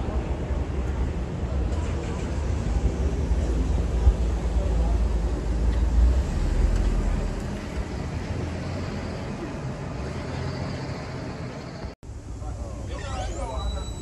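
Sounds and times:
idling vehicles and road traffic: 0:00.0 - 0:14.0.

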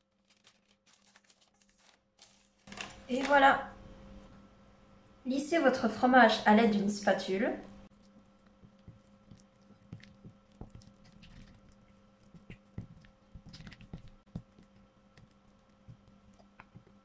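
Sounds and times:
cream cheese squishing: 0:07.9 - 0:17.0.

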